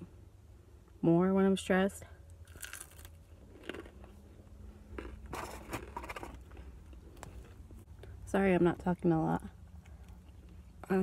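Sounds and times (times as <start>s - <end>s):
person chewing: 2.4s - 8.1s.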